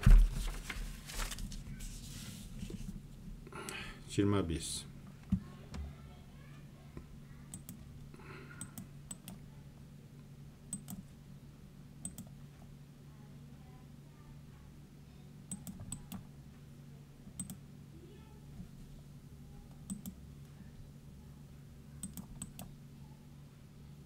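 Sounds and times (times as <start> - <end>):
low steady hum: 0.0 - 24.0
mouse and keyboard clicking: 8.6 - 9.4, 12.0 - 12.3, 19.9 - 20.2, 22.0 - 22.7.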